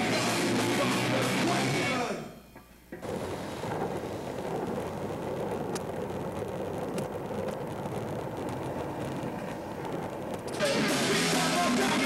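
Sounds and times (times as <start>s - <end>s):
skateboard wheels rolling on asphalt: 2.9s - 12.0s
sharp clicks: 5.6s - 10.7s.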